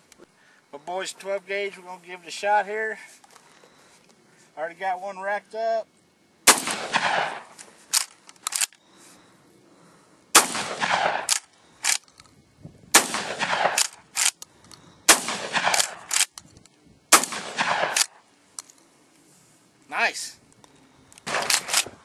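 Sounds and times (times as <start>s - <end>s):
shotgun shots echoing: 6.5s - 7.6s, 10.3s - 12.0s, 12.9s - 14.3s, 15.1s - 16.3s, 17.1s - 18.2s, 21.2s - 22.0s
shotgun pump racking clacks: 7.9s - 8.8s, 13.8s - 14.8s, 15.7s - 16.5s, 21.2s - 22.0s.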